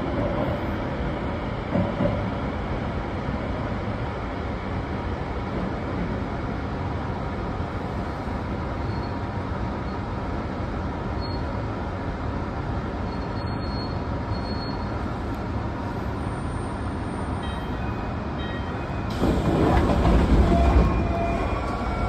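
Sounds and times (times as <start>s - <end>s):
train wheels rumbling on rails: 0.0s - 10.1s, 15.0s - 22.0s.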